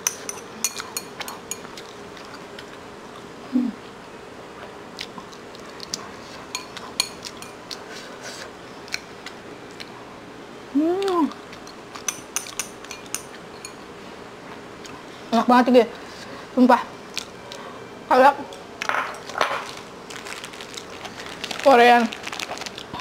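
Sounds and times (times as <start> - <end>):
person humming: 3.5 - 3.8, 10.7 - 11.3
chopsticks tapping a bowl: 12.0 - 13.8.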